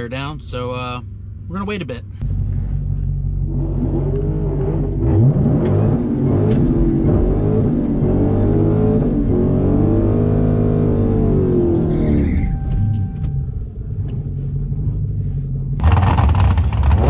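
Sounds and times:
car engine revving hard: 0:03.5 - 0:11.8, 0:15.8 - 0:17.0.

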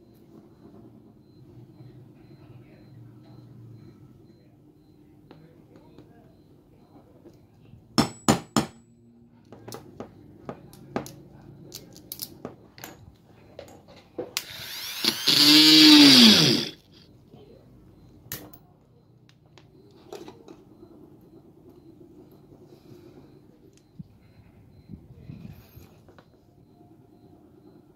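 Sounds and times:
loud whirring winding down: 0:14.4 - 0:17.0.

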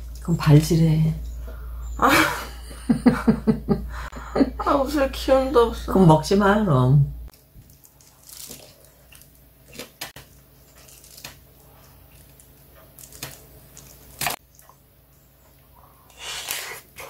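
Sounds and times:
crab squishing: 0:07.3 - 0:14.8.

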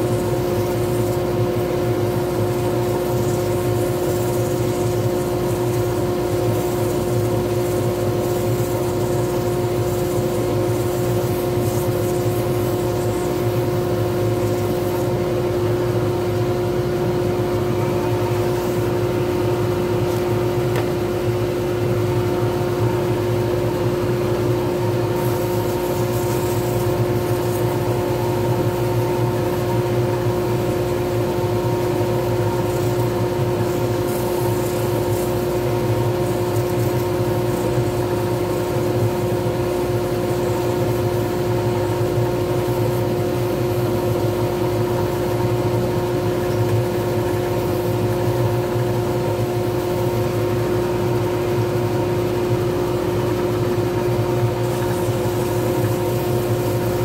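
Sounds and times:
wood lathe humming: 0:00.0 - 0:15.6.

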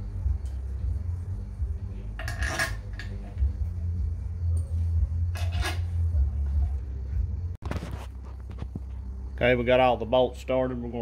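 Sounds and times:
steady low hum: 0:00.0 - 0:11.0
bolts clinking on metal: 0:02.2 - 0:03.4, 0:05.3 - 0:06.0.

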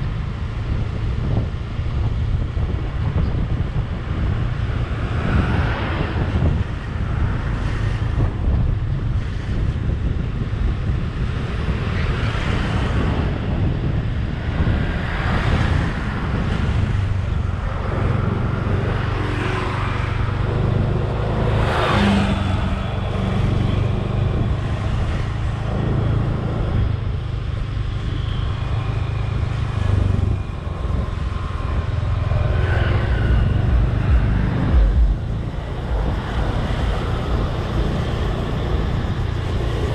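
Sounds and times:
road noise: 0:00.0 - 0:39.9
wind buffeting microphone: 0:00.0 - 0:39.9
low engine drone: 0:13.1 - 0:39.9.

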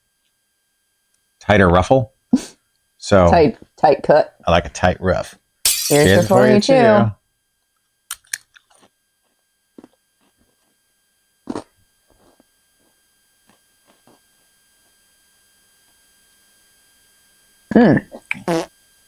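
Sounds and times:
potato chips crunching: 0:08.1 - 0:08.9.

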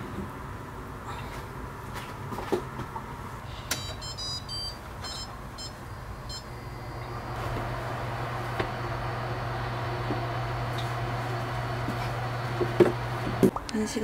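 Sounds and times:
steady low hum: 0:03.2 - 0:14.0
short electronic beeps: 0:03.7 - 0:06.8.

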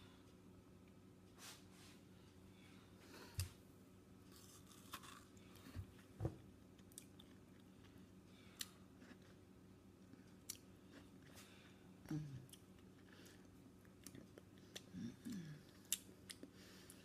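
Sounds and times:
low steady hum: 0:00.0 - 0:17.0
crunching and chewing: 0:04.3 - 0:06.1, 0:06.7 - 0:11.7, 0:12.4 - 0:17.0.

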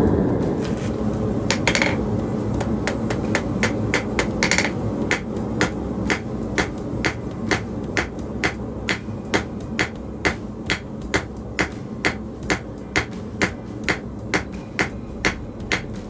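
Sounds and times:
low rumble: 0:00.0 - 0:10.6
hammer striking metal on anvil: 0:02.6 - 0:16.0.

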